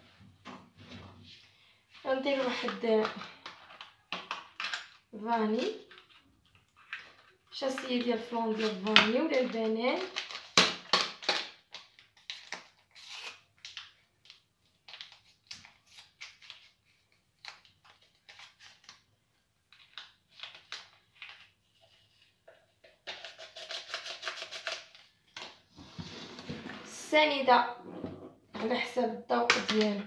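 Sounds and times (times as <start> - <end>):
paper sachet crinkling and tearing: 10.0 - 19.1, 19.7 - 22.1, 23.0 - 25.1.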